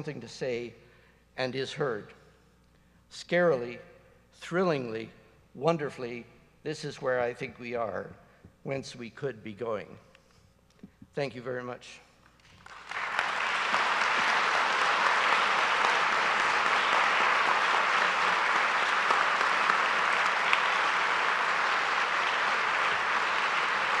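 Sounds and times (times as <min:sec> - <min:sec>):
audience applauding: 0:12.5 - 0:24.0.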